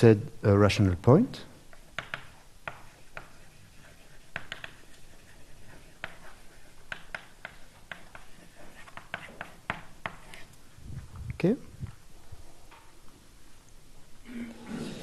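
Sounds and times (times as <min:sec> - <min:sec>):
writing taps and scratches on board: 0:01.7 - 0:10.5.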